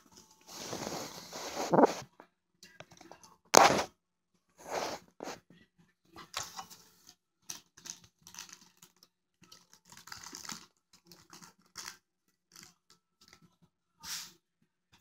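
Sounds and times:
plastic toy pieces clicking: 0:07.5 - 0:13.0.

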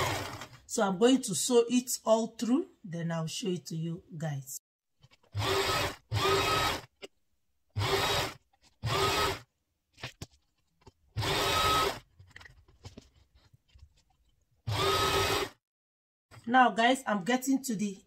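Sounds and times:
sewing machine stitching: 0:00.0 - 0:00.6, 0:05.1 - 0:06.9, 0:07.8 - 0:09.5, 0:11.2 - 0:12.1, 0:14.7 - 0:15.6.

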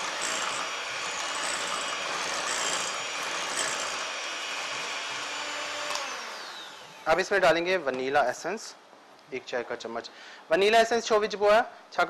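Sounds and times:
electric hand mixer whisking: 0:00.0 - 0:07.0.

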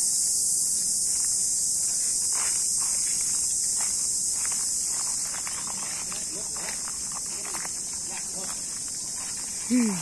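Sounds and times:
insects shrilling: 0:00.0 - 0:10.0.

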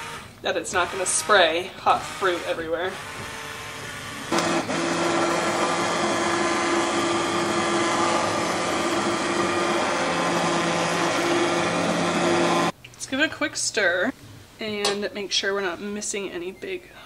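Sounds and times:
immersion blender motor hum: 0:00.0 - 0:12.7.

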